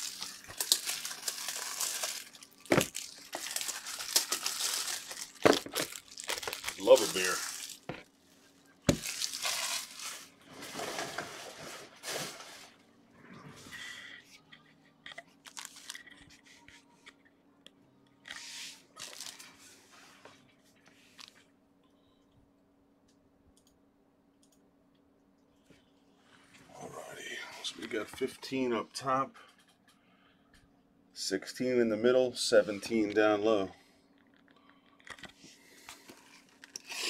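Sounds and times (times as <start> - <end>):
plastic crinkling: 0.0 - 12.4, 15.1 - 16.4, 18.9 - 19.6.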